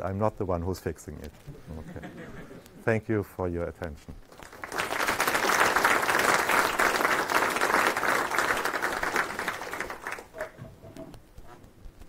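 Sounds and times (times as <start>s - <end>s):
audience applauding: 4.3s - 10.6s.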